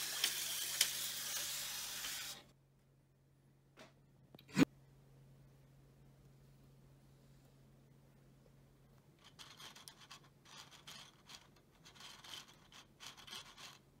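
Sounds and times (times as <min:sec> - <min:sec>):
faint low hum: 0:02.5 - 0:14.0
plastic parts rubbing: 0:09.2 - 0:14.0.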